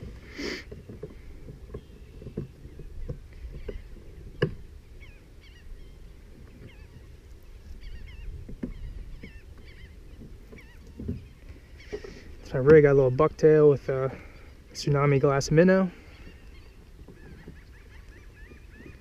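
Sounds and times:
gear knocking in kayak: 0:00.0 - 0:04.8, 0:07.8 - 0:13.2
birds chirping: 0:00.0 - 0:19.0
low wind rumble: 0:00.0 - 0:19.0.

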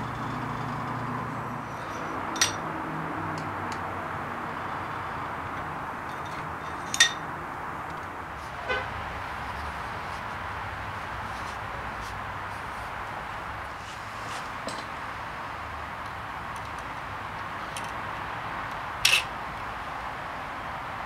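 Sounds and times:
steady background noise: 0:00.0 - 0:21.0
small metal parts clinking: 0:01.7 - 0:02.7, 0:06.1 - 0:07.3, 0:19.0 - 0:19.3.

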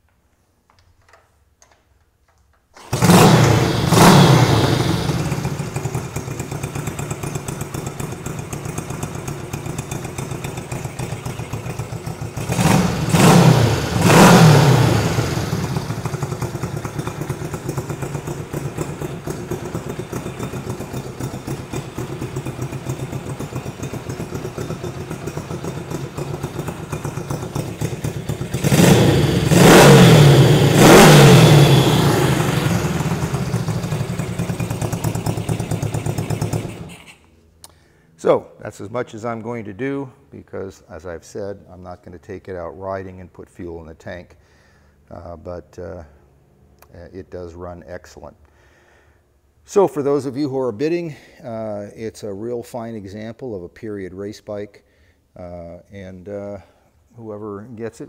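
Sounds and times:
motorcycle engine starting and revving: 0:02.8 - 0:37.4
motorcycle engine idling: 0:02.9 - 0:37.2.

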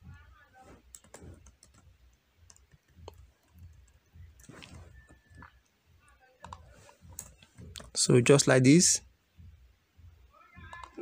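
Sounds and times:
keyboard keys clicking: 0:00.9 - 0:01.9.

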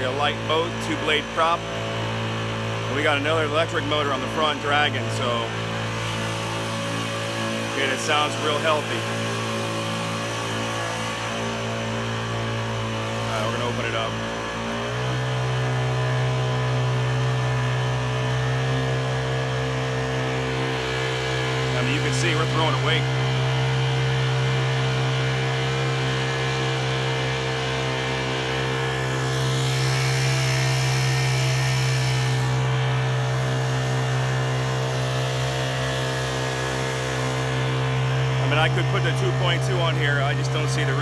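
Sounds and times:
outboard engine at high throttle: 0:00.0 - 0:41.0.

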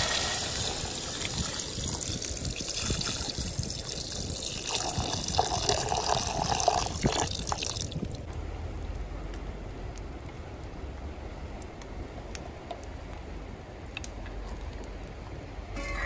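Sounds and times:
meat frying in oil: 0:00.0 - 0:08.0
water pouring into a pot: 0:00.0 - 0:08.1.

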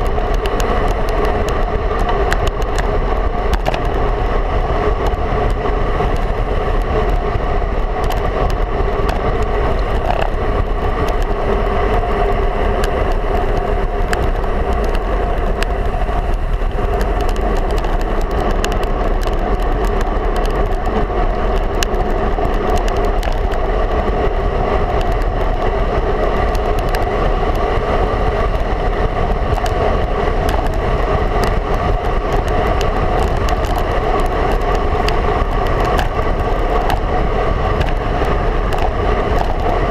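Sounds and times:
small clicks: 0:00.0 - 0:04.1, 0:12.7 - 0:23.6, 0:29.4 - 0:39.8
bike tyres rolling on asphalt: 0:00.0 - 0:39.9
wind rush over camera: 0:00.0 - 0:39.9.

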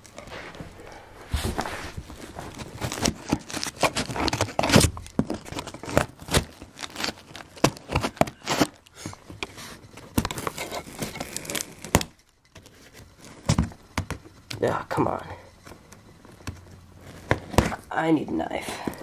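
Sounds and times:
cardboard crackling and tearing: 0:01.4 - 0:14.7, 0:15.7 - 0:18.0
scissors snipping cardboard: 0:02.8 - 0:08.8.

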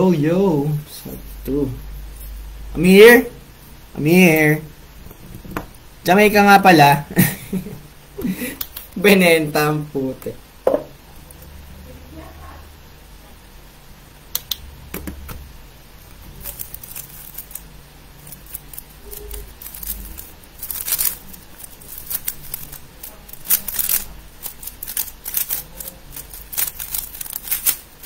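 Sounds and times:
puzzle cube plastic clicks: 0:16.4 - 0:27.9.

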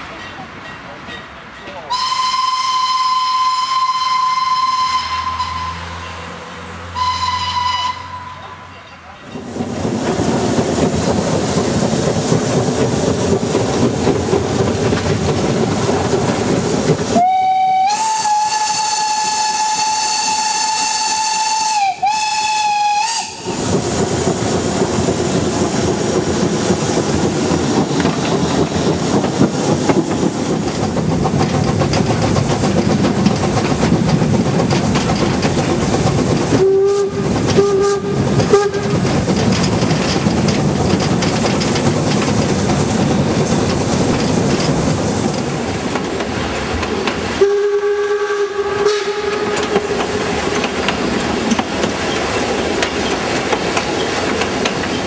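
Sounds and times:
train running noise: 0:00.0 - 0:55.0
low steam whistle toots: 0:01.9 - 0:06.3, 0:06.9 - 0:08.8, 0:17.1 - 0:23.6, 0:36.5 - 0:39.0, 0:47.4 - 0:50.3
steam locomotive whistle blast: 0:01.9 - 0:06.3, 0:06.9 - 0:08.7, 0:17.1 - 0:23.6, 0:36.5 - 0:39.0, 0:47.4 - 0:50.1.

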